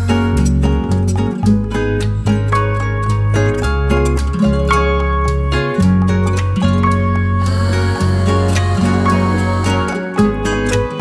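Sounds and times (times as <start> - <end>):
instrumental music with bass: 0.0 - 11.0.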